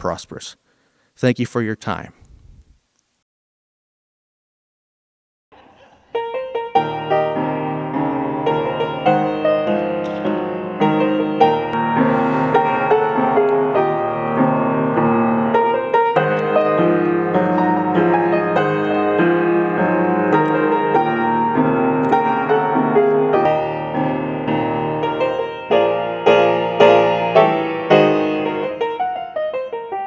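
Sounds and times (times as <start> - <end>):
piano piece: 6.1 - 30.0.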